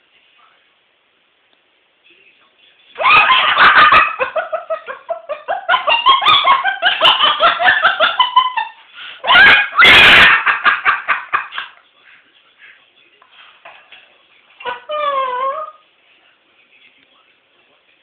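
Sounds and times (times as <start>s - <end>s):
cockatoo laughing: 3.0s - 11.8s, 14.6s - 15.8s.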